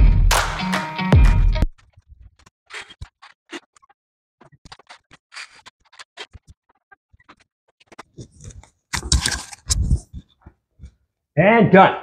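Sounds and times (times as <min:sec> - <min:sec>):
scratching scraping and tapping: 0:07.2 - 0:11.0.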